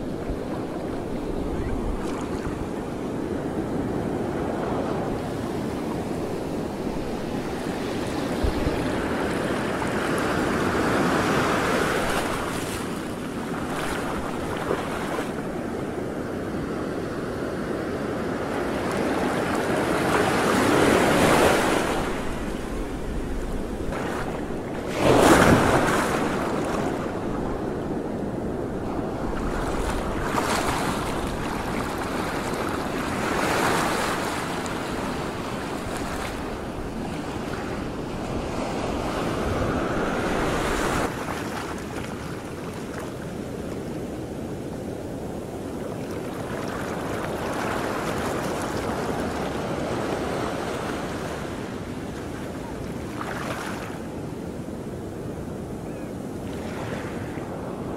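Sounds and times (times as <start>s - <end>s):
wind buffeting microphone: 0.0s - 16.0s, 19.6s - 42.6s
sea waves washing in: 0.0s - 54.6s.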